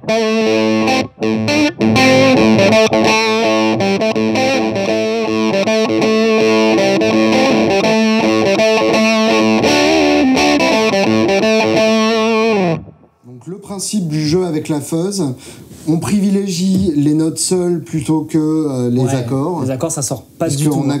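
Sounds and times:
distorted fuzz electric guitar: 0.0 - 13.1.

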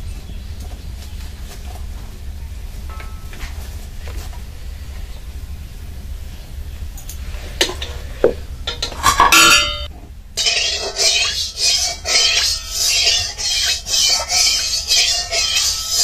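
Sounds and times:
steel utensils clinking: 8.6 - 16.0
background music with beat: 10.8 - 16.0.

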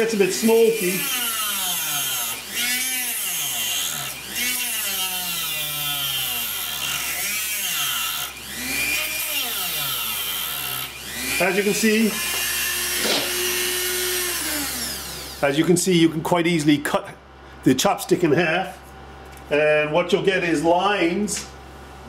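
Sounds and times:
rotary tool whine: 0.0 - 15.7.

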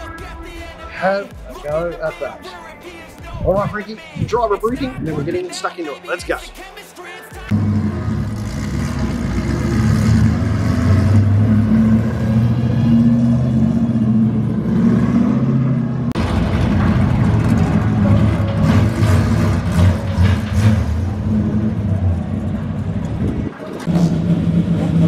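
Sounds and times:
race car engines at low revs: 7.5 - 25.0.

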